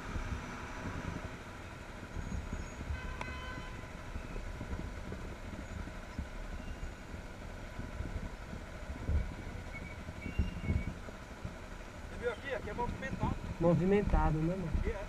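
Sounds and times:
city traffic rumble: 0:00.0 - 0:15.0.

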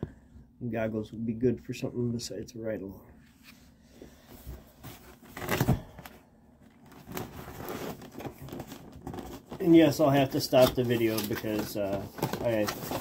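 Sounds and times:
box rustling and knocking: 0:10.6 - 0:13.0.

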